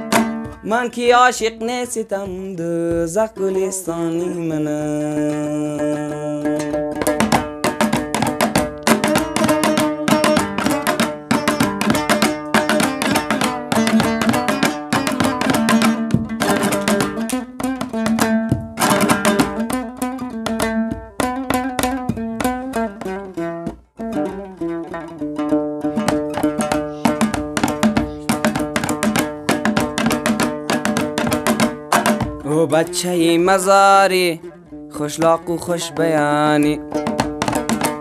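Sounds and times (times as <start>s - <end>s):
lute strumming: 0.0s - 38.0s.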